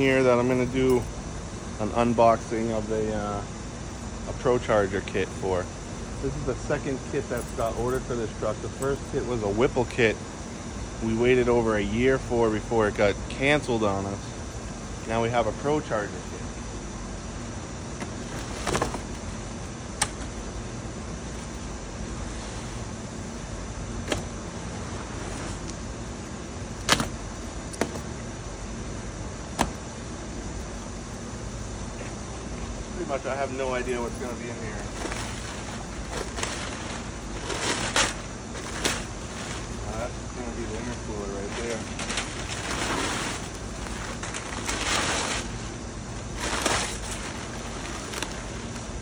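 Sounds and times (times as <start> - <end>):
low background hum: 0.0 - 49.0
packing paper rustling and crinkling: 18.1 - 19.2, 33.6 - 49.0.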